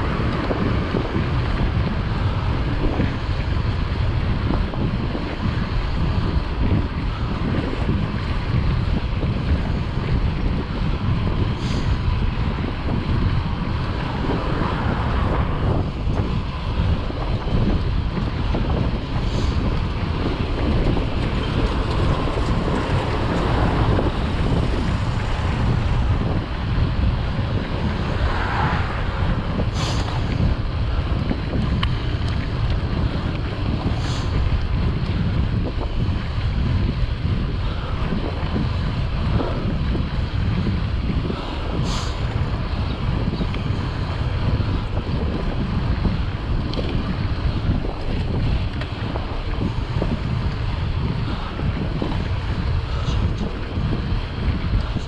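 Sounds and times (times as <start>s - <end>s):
low rumbling noise: 0.0s - 55.0s.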